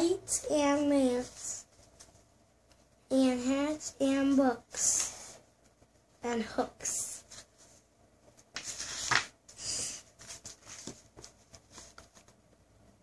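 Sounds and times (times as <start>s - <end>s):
book pages rustling: 1.1s - 2.9s, 7.2s - 12.6s.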